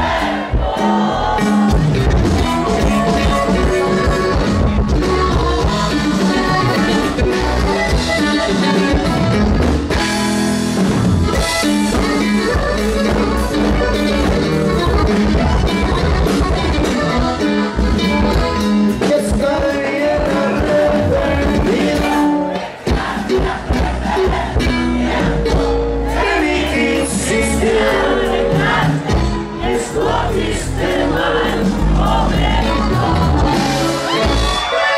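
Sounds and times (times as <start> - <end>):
person singing lead vocal: 0.0 - 8.0, 19.0 - 34.9
live band playing: 0.0 - 34.9.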